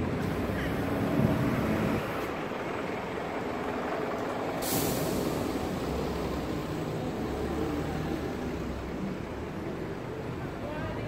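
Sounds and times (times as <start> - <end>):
city traffic rumble: 0.0 - 11.0
short sharp hiss: 4.6 - 5.4.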